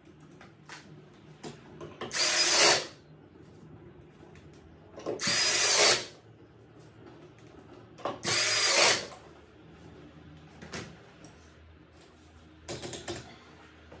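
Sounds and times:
cordless drill driving screw: 0:02.1 - 0:02.9, 0:05.2 - 0:06.1, 0:08.2 - 0:09.1.

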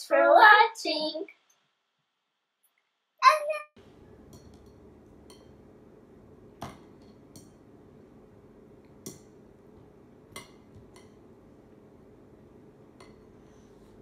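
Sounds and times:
faint hum: 0:03.2 - 0:14.0
utensil clinking on a plate: 0:04.2 - 0:05.6.

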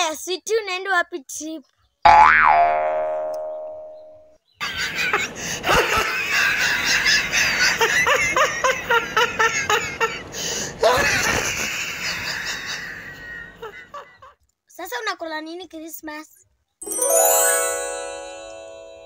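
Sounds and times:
boing sound effect: 0:02.1 - 0:04.3
quick giggling laughter: 0:04.6 - 0:14.4.

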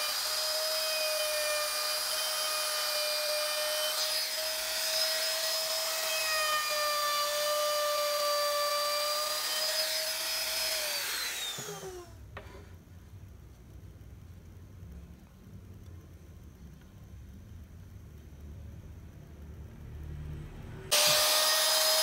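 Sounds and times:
electric router whining: 0:00.0 - 0:12.1, 0:20.9 - 0:22.0.

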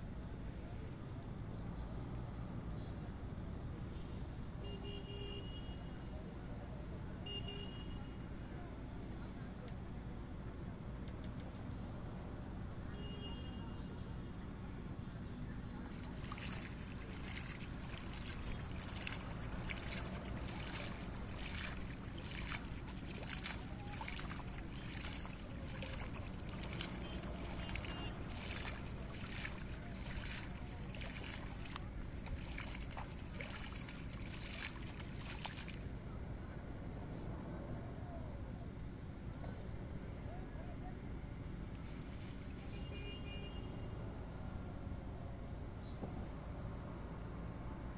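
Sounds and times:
hand splashing pond water: 0:15.9 - 0:35.8.

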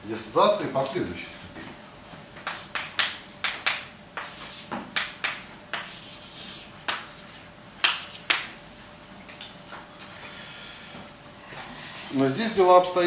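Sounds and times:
chalk tapping on blackboard: 0:02.4 - 0:08.6.

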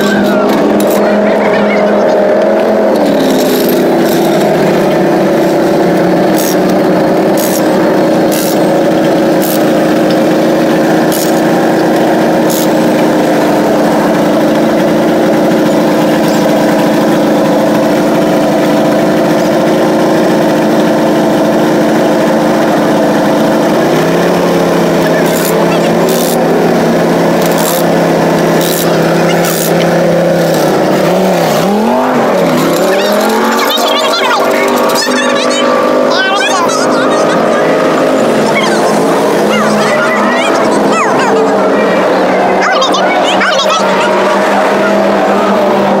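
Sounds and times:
engine idling: 0:00.0 - 0:46.0
metallic clicks and clanks: 0:02.5 - 0:10.3.

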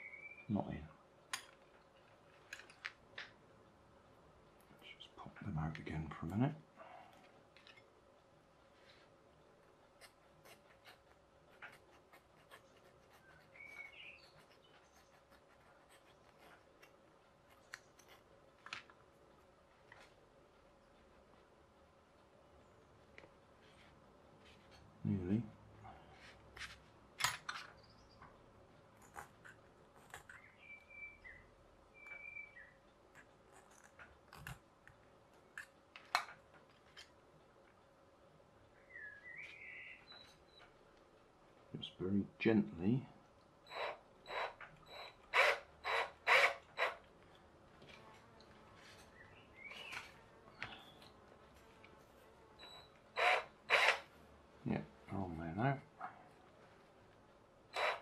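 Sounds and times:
faint chirp: 0:00.0 - 0:00.9, 0:12.8 - 0:15.2, 0:30.3 - 0:32.8, 0:38.7 - 0:40.7, 0:48.9 - 0:51.2, 0:52.6 - 0:53.0
file clicking on plastic gear: 0:57.8 - 0:58.0.

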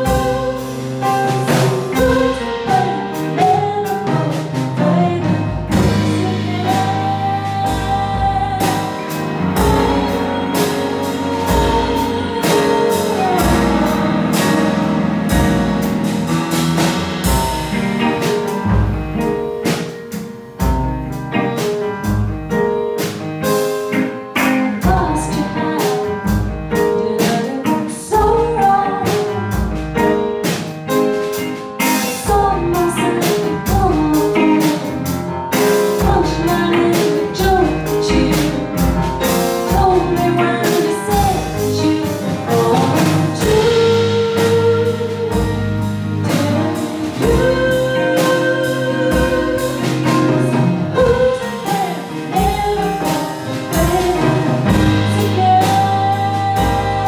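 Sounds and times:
drum kit with cymbal strikes: 0:00.0 - 0:57.0
upright piano: 0:00.0 - 0:57.0.

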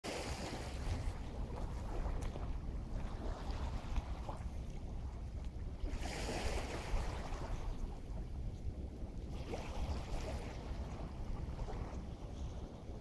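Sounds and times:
waves washing in: 0:00.1 - 0:08.4, 0:09.2 - 0:13.0
wind rumbling on microphone: 0:00.1 - 0:13.0.

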